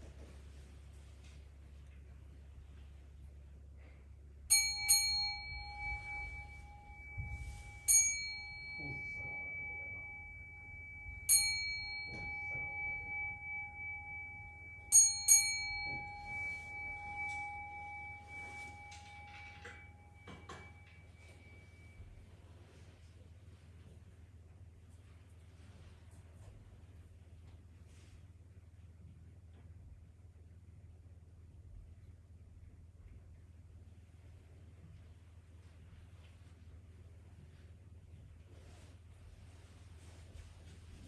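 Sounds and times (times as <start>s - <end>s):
bowl bell ringing: 3.8s - 22.8s.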